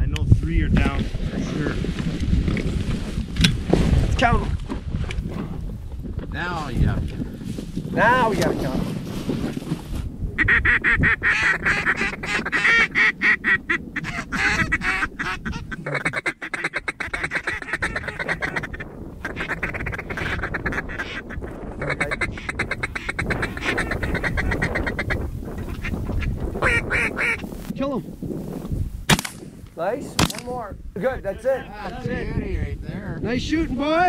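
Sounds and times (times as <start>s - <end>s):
duck call rapid chatter: 10.4s - 25.9s, 26.6s - 27.4s.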